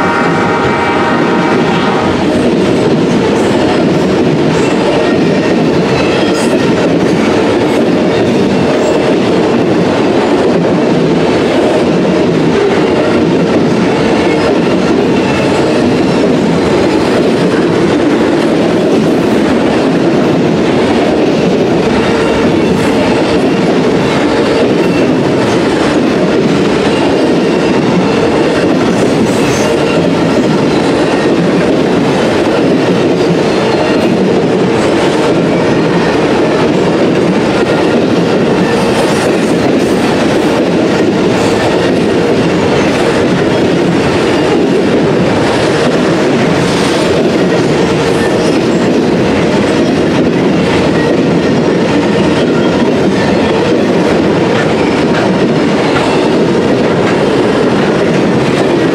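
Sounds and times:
steel wheels rumbling on rail: 0.0s - 58.9s.

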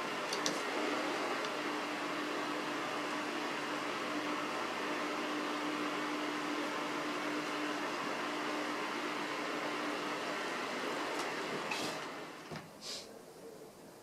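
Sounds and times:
desk fan whirring: 0.0s - 14.0s.

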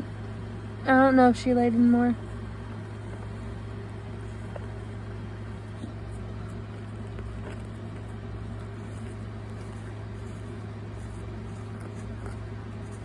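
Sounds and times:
low machine hum: 0.0s - 13.0s
fingers scratching soil: 2.7s - 13.0s.

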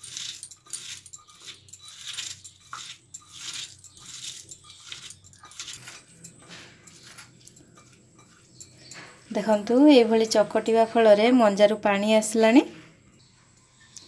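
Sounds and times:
glass bangles jingling: 0.0s - 10.4s.

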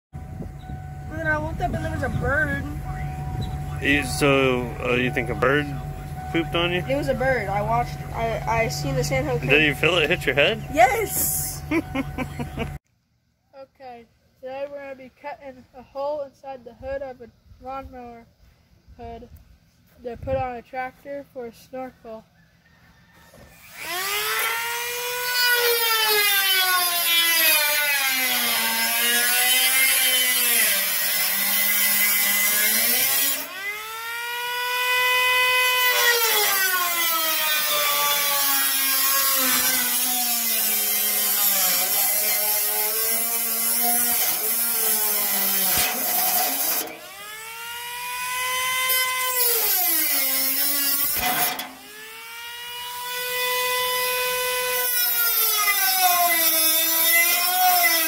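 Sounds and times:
rotary tool motor whine: 0.2s - 12.8s, 23.1s - 58.0s.

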